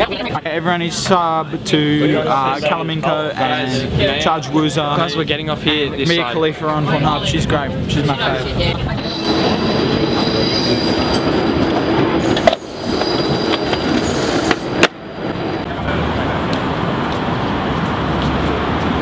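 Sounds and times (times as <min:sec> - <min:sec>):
tram rolling noise: 0:00.0 - 0:19.0
tram rumbling: 0:00.0 - 0:19.0
tram wheels squealing: 0:08.1 - 0:15.7, 0:18.2 - 0:19.0.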